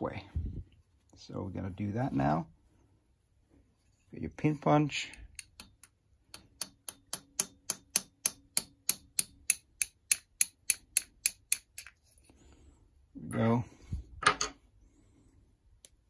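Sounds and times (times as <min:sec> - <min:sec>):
hammer tapping metal punch: 0:05.3 - 0:11.8.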